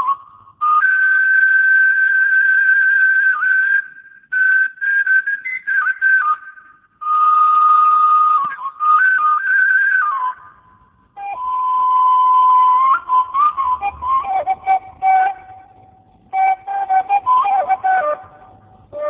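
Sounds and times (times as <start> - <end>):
person whistling: 16.3 - 19.0.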